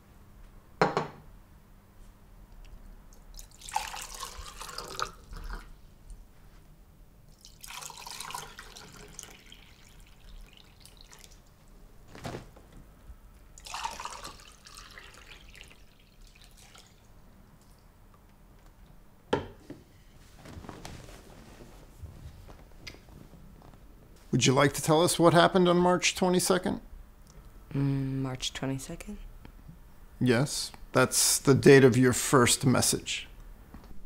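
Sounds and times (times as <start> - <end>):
water pouring into glasses: 3.3 - 5.8, 7.3 - 11.5, 13.6 - 17.1.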